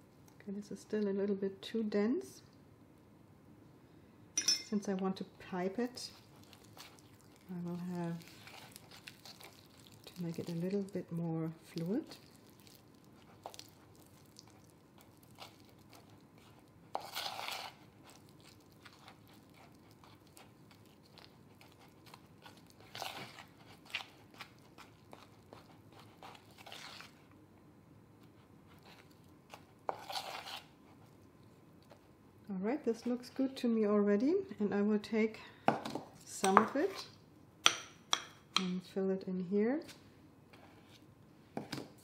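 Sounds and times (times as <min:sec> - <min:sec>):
spoon scraping icing in bowl: 0:06.0 - 0:27.2, 0:28.2 - 0:31.2.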